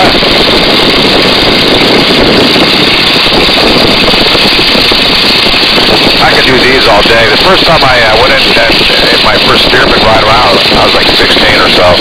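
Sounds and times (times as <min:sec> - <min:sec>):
biplane radial engine and propeller: 0:00.0 - 0:12.0
heavy wind rush: 0:00.0 - 0:12.0.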